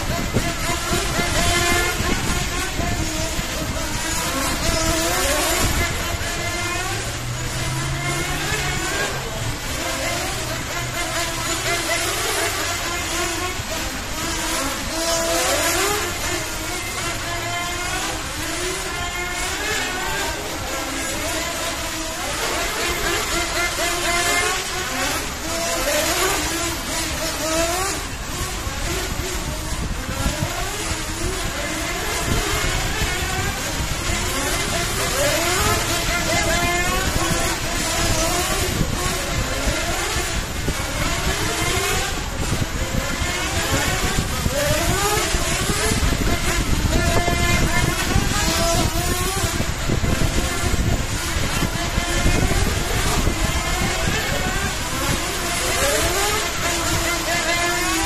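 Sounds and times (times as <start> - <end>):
electric rc car motors whining: 0.0 - 58.0
steady rushing noise: 0.0 - 58.0.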